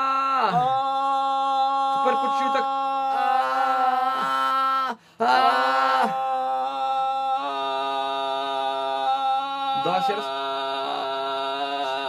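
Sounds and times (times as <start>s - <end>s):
man singing a held note: 5.2s - 12.0s.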